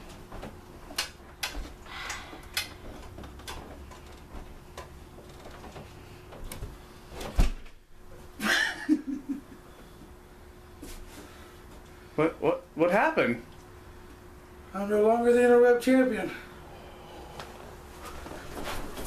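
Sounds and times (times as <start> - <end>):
footsteps in a room: 0.0 - 8.4, 9.8 - 12.0, 17.3 - 19.0.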